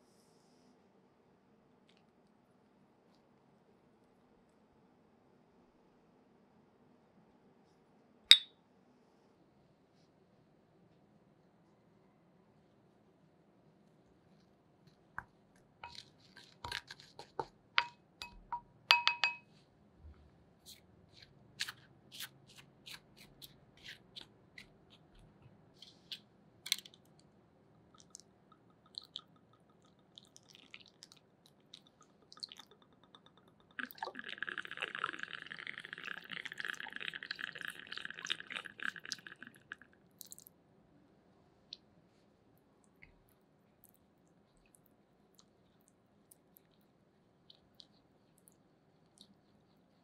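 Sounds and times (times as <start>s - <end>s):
water running into bowl: 31.8s - 39.8s.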